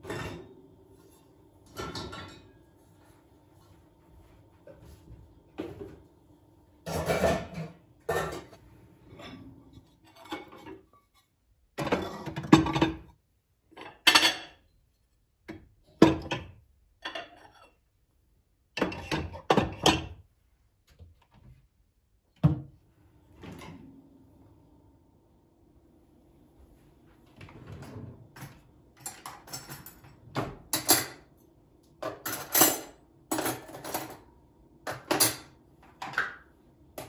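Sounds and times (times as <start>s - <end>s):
dishes and cutlery clinking: 0.0s - 2.6s, 6.8s - 11.2s, 13.8s - 14.7s, 29.0s - 31.4s, 32.0s - 34.2s, 34.9s - 36.4s.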